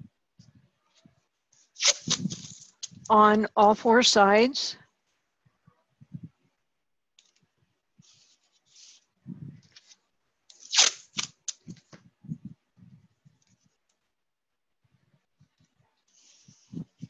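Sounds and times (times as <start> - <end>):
masking tape pulled off roll: 1.6 - 3.1, 9.7 - 11.9
loud tape rip: 1.8 - 3.0, 10.6 - 11.7.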